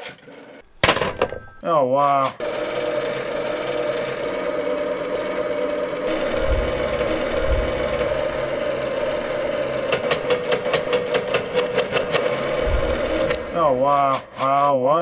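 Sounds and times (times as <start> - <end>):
rotary dial whirring: 2.4 - 14.3.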